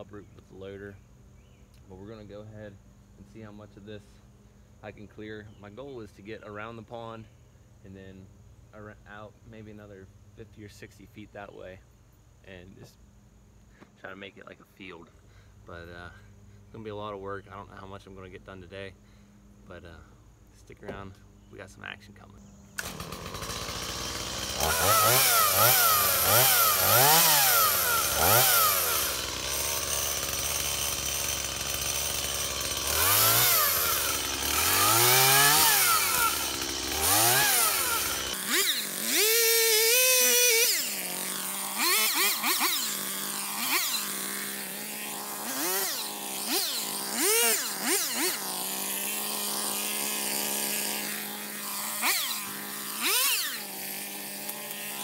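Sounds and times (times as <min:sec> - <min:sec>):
chainsaw revving: 0:22.8 - 0:55.0.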